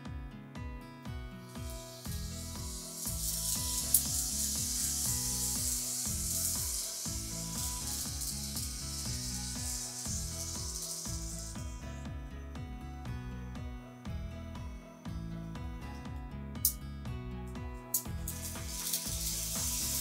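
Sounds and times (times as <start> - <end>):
background music: 0.0 - 20.0
model trains whirring on track: 1.9 - 11.5, 18.4 - 20.0.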